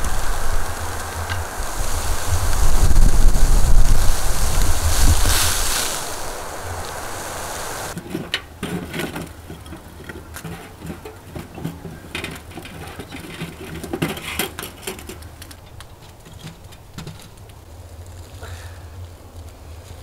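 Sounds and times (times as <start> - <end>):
firewood knocking and clacking: 0.0 - 7.0, 7.9 - 17.7
steady low hum: 0.0 - 8.0.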